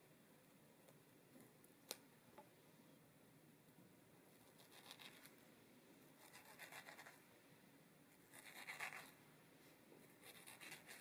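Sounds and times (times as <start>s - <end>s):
knife scraping mango skin: 6.2s - 7.2s, 8.3s - 9.1s, 10.2s - 11.0s.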